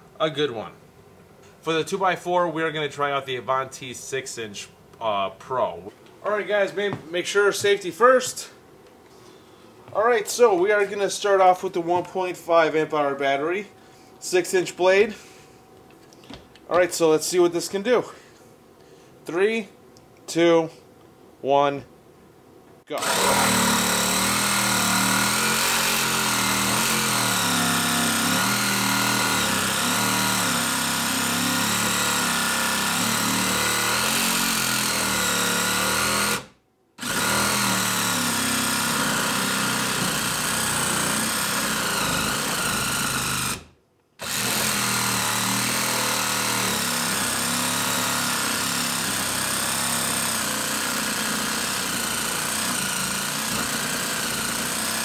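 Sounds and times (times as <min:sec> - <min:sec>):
reciprocating saw cutting wood: 0:23.0 - 0:55.0.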